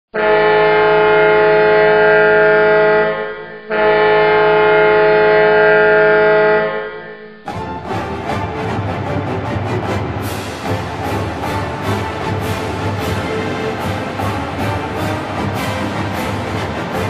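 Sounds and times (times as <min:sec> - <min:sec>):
goal horn blasts: 0:00.2 - 0:09.1, 0:10.0 - 0:17.0
arena music: 0:07.3 - 0:17.0.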